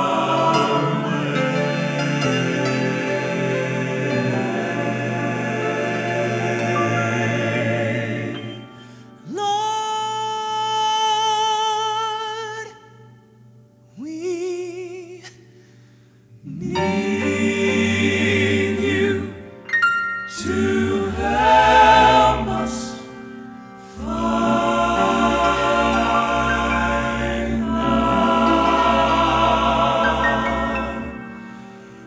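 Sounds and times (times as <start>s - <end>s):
vocal quartet singing harmony: 0.0s - 13.2s, 16.3s - 32.0s
man singing with vibrato: 9.2s - 13.1s, 14.0s - 15.4s.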